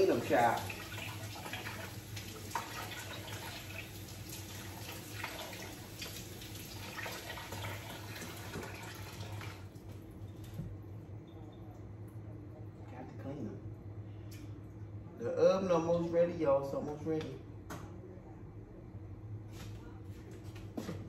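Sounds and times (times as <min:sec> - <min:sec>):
tap water splashing: 0:00.5 - 0:10.7.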